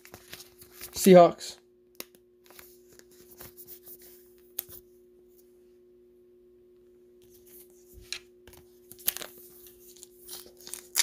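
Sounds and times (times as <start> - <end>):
steady low hum: 0.0 - 10.6
trading cards clicking and rustling: 8.1 - 11.0.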